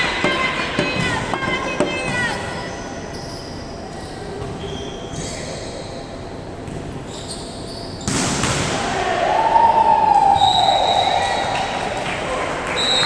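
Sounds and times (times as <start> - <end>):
volleyball struck hard: 8.0 - 8.9
long raised shout: 8.8 - 12.5.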